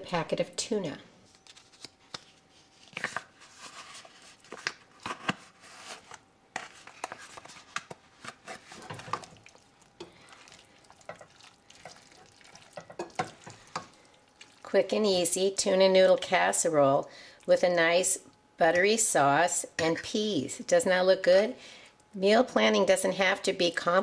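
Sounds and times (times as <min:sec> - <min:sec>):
spatula stirring and scraping pan: 0:05.5 - 0:14.6.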